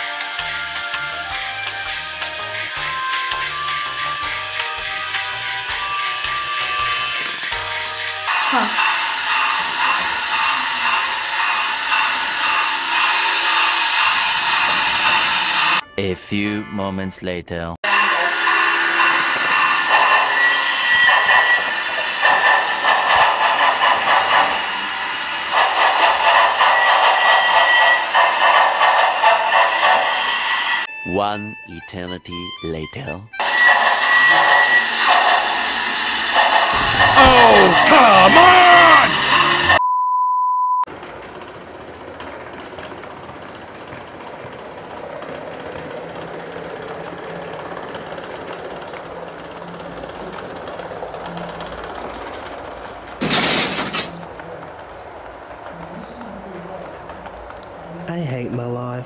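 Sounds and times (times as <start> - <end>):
model train whirring rattle: 0.0 - 15.8, 17.8 - 30.9, 33.3 - 38.4, 40.9 - 58.1
high-pitched censor bleep: 39.8 - 40.9.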